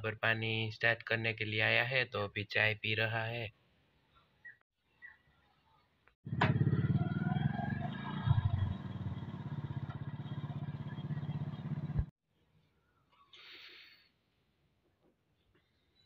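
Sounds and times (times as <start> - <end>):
motorcycle engine puttering: 6.3 - 12.1.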